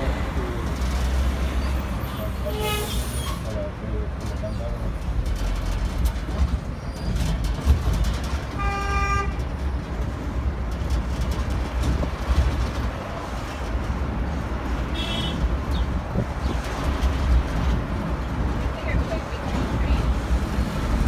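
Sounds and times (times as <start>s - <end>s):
road train engine rumble: 0.0s - 21.0s
wind on microphone: 15.4s - 21.0s.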